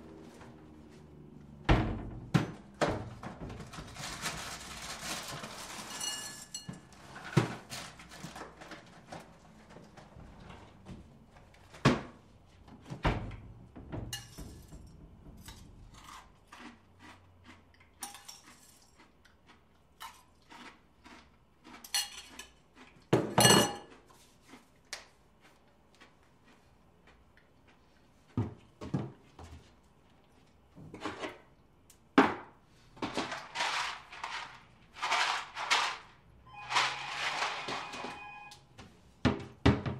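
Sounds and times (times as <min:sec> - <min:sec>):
dishes and utensils clinking: 0:05.8 - 0:07.5, 0:14.0 - 0:15.7, 0:23.2 - 0:24.0.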